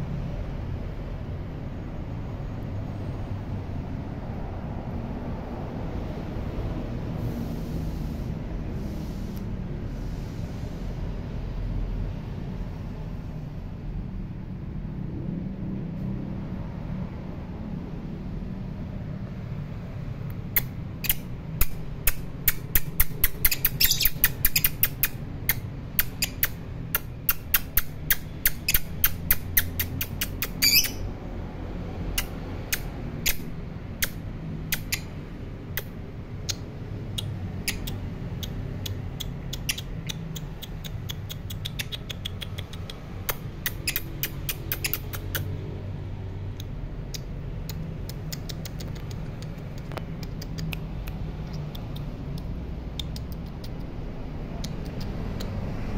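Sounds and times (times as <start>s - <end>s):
lovebirds chirping: 22.1s - 31.1s, 33.2s - 35.2s, 37.2s - 42.9s, 43.6s - 45.4s.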